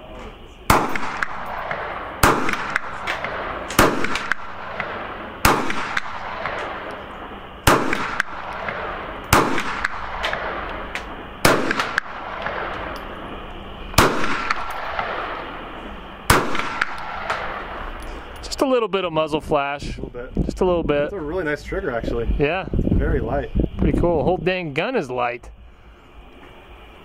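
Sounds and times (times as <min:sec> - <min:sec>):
pistol shots with echo: 0:00.7 - 0:18.0.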